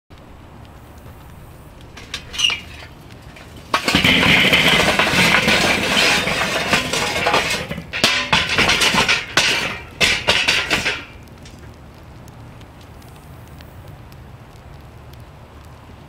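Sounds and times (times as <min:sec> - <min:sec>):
charcoal clattering onto metal grate: 0:01.9 - 0:11.8.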